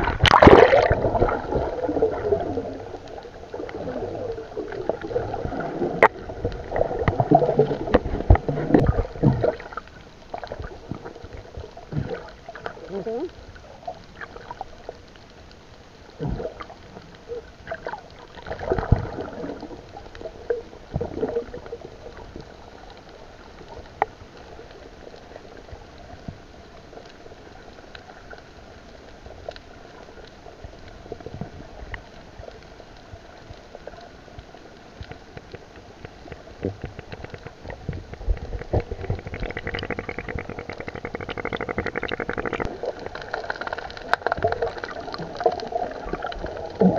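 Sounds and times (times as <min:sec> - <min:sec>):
muffled underwater hiss: 0:00.0 - 0:46.9
water bubbling and gurgling: 0:00.0 - 0:46.9
dull knocks underwater: 0:05.4 - 0:09.7, 0:35.3 - 0:43.2.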